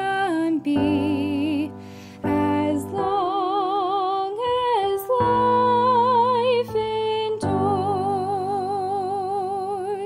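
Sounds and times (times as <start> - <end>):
slow background music: 0.0 - 10.0.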